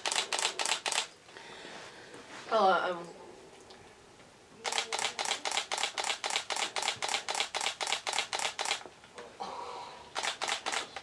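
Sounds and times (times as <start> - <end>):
camera shutter burst: 0.0 - 1.1, 4.6 - 8.8, 10.1 - 11.0.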